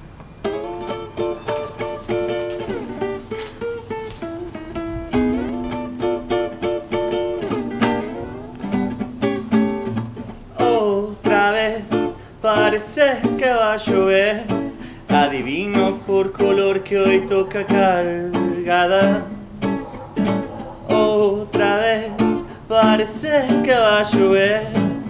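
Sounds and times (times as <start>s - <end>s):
fingerpicked acoustic guitar: 0.3s - 25.0s
man singing with vibrato: 10.5s - 25.0s.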